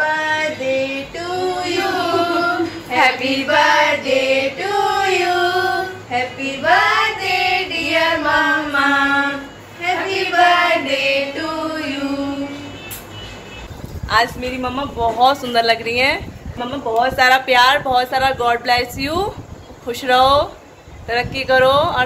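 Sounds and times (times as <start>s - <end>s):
women singing together: 0.0s - 12.9s.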